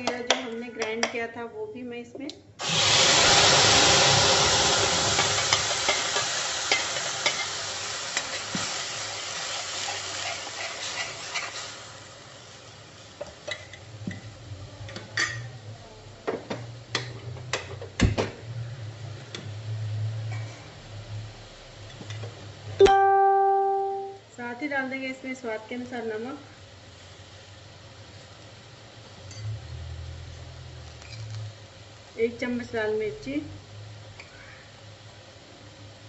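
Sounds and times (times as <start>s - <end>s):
paste sizzling in hot oil: 2.6s - 14.3s.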